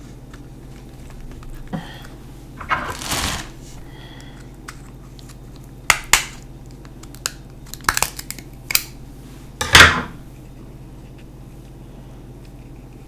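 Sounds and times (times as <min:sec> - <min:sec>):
crab shell cracking: 0:04.6 - 0:09.0.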